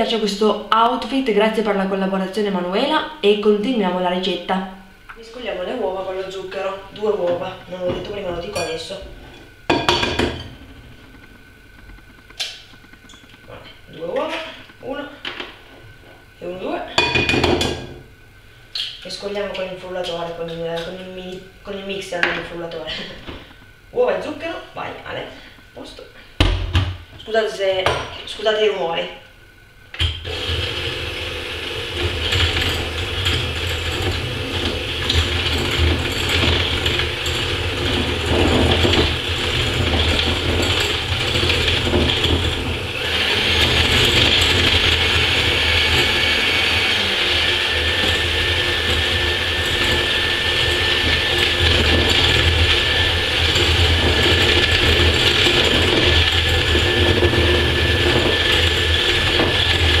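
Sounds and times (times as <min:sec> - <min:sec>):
electric hand mixer whisking: 0:30.2 - 1:00.0.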